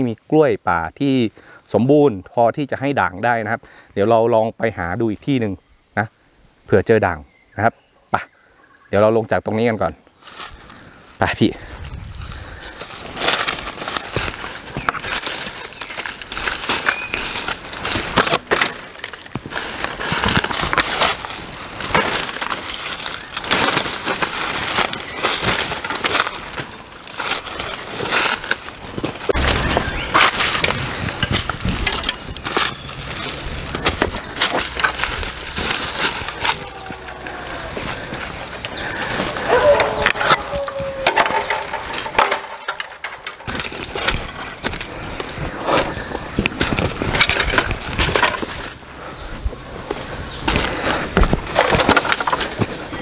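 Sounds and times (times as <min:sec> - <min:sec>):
footsteps on dry leaves: 0:11.7 - 0:53.0
branches brushing clothing: 0:11.8 - 0:53.0
twigs snapping underfoot: 0:12.2 - 0:48.8.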